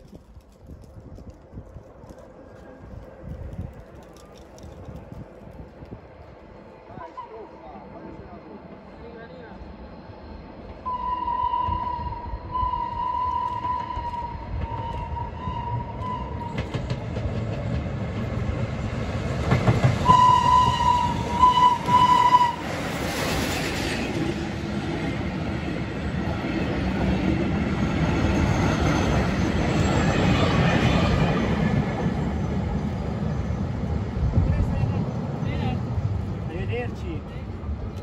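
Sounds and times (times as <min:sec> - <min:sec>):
steam whistle blasts: 0:10.8 - 0:16.7, 0:20.0 - 0:22.8
train wheels clacking on rails: 0:12.9 - 0:25.6.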